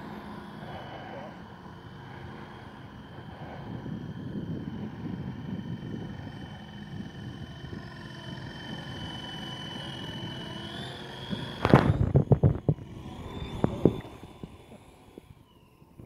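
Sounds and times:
rc helicopter motor whine: 0:00.0 - 0:16.0
wind buffeting microphone thumps: 0:11.2 - 0:15.3.

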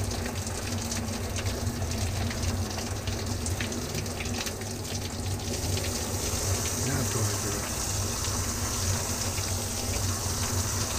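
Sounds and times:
low steady hum: 0:00.0 - 0:10.9
shower head spraying water: 0:05.5 - 0:10.9.

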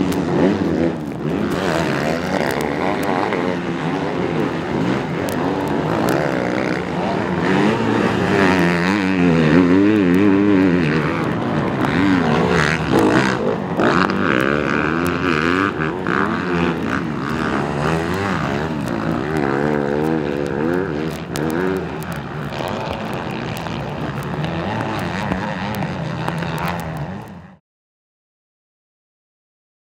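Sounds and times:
motocross bike engines racing: 0:00.0 - 0:27.6.

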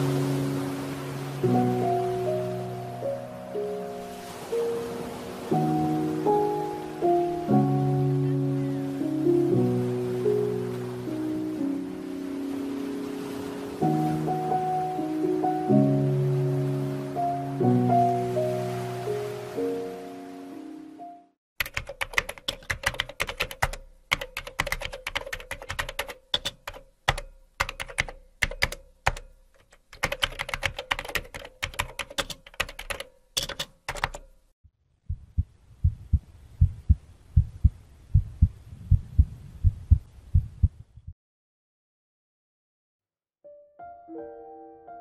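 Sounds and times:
keyboard key clicks: 0:21.6 - 0:34.3
heartbeat thumps: 0:35.1 - 0:41.2.

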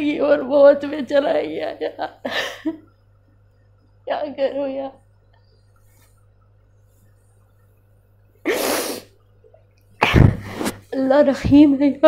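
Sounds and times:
woman's sharp burst of breath: 0:08.5 - 0:09.1.

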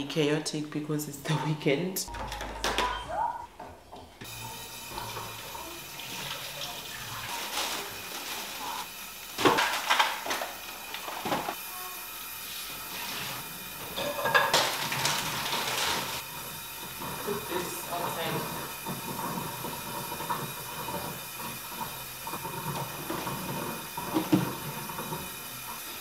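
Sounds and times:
utensils knocking on countertop: 0:02.1 - 0:03.0, 0:09.4 - 0:10.6, 0:13.9 - 0:16.0, 0:16.8 - 0:25.4.

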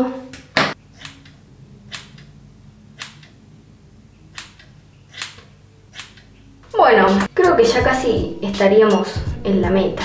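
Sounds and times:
scissors snipping hair: 0:00.6 - 0:02.3, 0:03.0 - 0:03.4, 0:04.3 - 0:06.4.

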